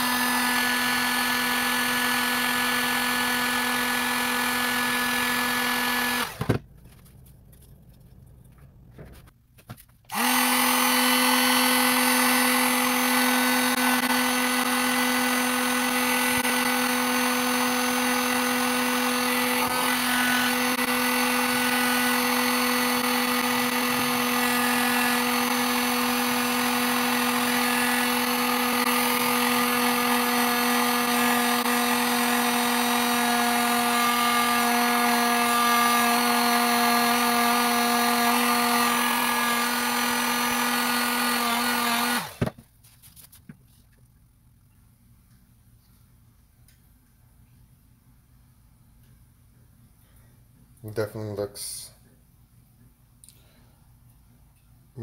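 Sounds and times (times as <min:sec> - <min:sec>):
heat gun motor hum: 0:00.0 - 0:06.6, 0:10.1 - 0:42.5.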